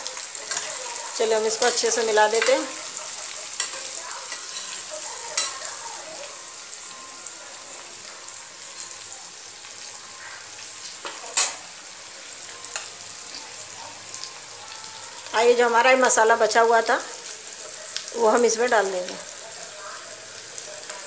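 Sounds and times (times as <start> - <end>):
food sizzling in hot oil: 0.0 - 21.0
spatula clinking against pan: 2.4 - 5.7.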